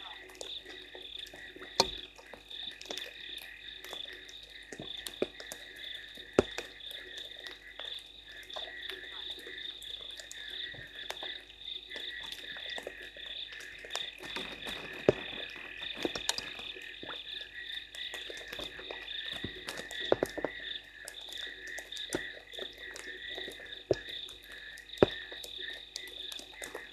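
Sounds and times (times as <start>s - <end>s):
frogs calling: 0.0s - 26.9s
raindrops tapping: 0.0s - 26.9s.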